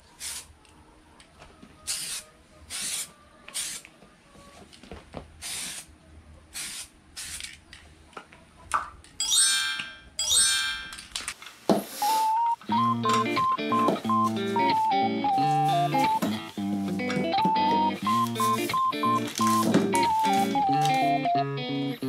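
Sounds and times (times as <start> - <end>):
aerosol spray can hissing: 6.6 - 7.4
glittering chime sound effect: 9.2 - 10.9.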